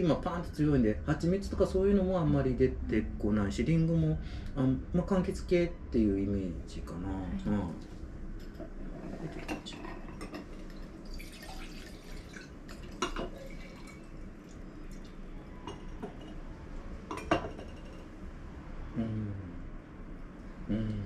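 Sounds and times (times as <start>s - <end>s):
liquid in glass: 9.0s - 16.5s
wine glasses clinking: 12.9s - 14.1s, 14.9s - 16.5s, 17.1s - 18.0s.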